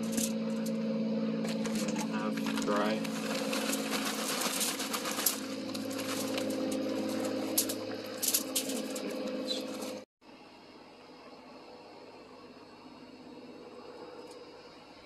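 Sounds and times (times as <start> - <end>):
low hum: 0.0 - 15.0
foil crinkling: 1.5 - 10.0
wood chips rattling: 1.5 - 10.0.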